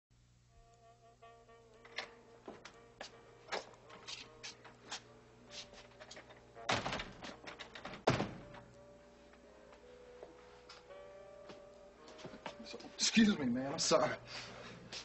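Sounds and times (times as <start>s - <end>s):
steps on wooden floor: 2.4s - 6.0s
loud thumps: 6.7s - 8.6s.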